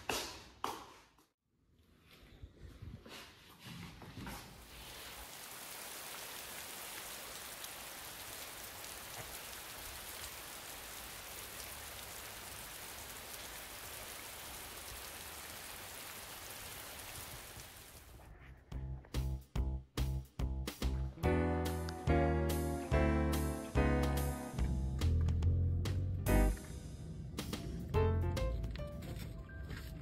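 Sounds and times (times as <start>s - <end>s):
shower spray hissing on tiles: 4.7s - 18.0s.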